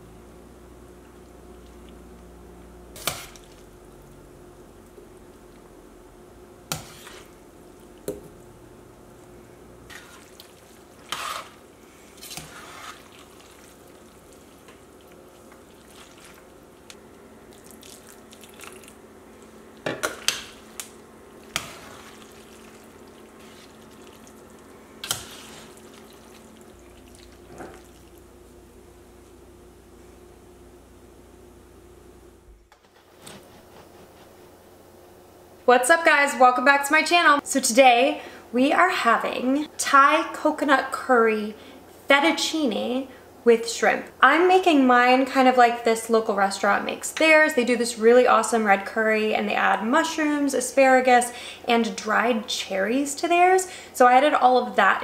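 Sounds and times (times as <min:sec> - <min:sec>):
steady low hum: 0:00.0 - 0:40.6.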